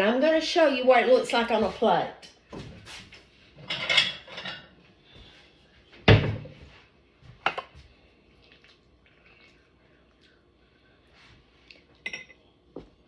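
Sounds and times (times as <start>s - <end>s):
dishes being handled: 3.6s - 4.7s, 12.0s - 12.4s.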